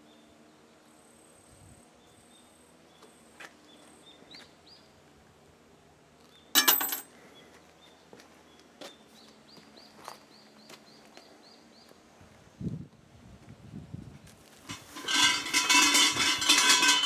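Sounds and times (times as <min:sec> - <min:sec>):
coin clinking into metal box: 0:06.6 - 0:07.1, 0:14.7 - 0:17.0.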